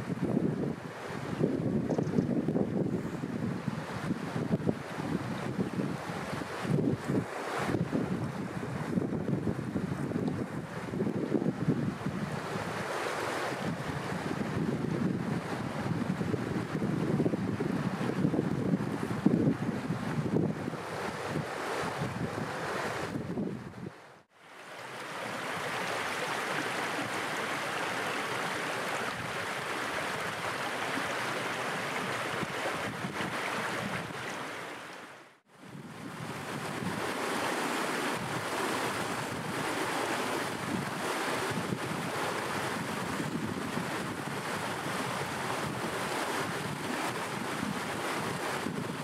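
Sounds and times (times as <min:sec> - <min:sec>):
stream rushing over stones: 0:24.3 - 0:49.0.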